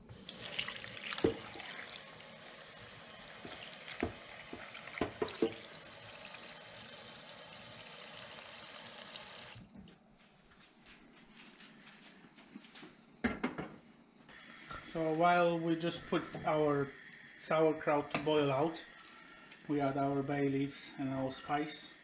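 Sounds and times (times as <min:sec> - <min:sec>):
tap water running into pot: 0:00.1 - 0:09.8.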